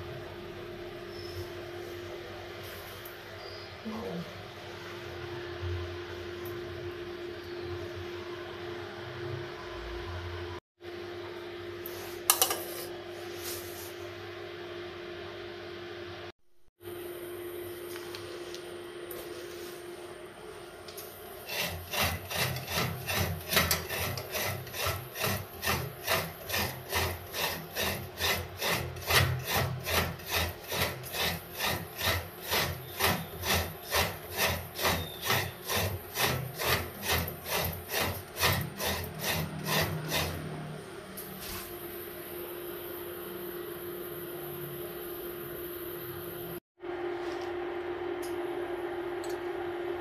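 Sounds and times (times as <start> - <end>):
metal scraper grating coconut: 21.4 - 40.7.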